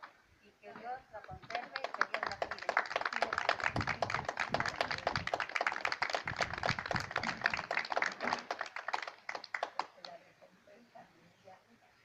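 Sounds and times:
people applauding: 1.4 - 10.1.

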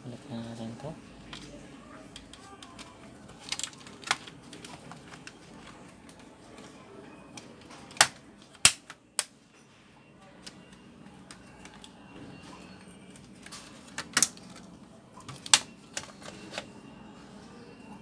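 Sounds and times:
plastic clips snapping into place: 7.9 - 9.3.

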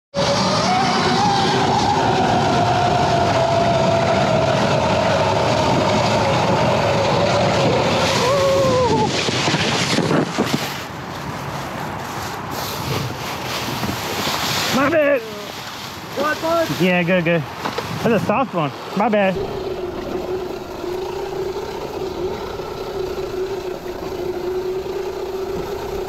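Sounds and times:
electric motor whining: 0.2 - 10.2, 19.0 - 26.0
wind noise on microphone: 0.2 - 14.8.

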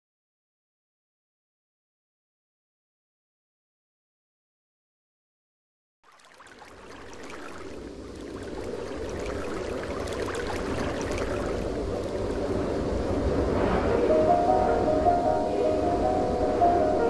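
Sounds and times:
river rushing over rapids: 6.9 - 13.4
held musical notes: 13.8 - 17.0.

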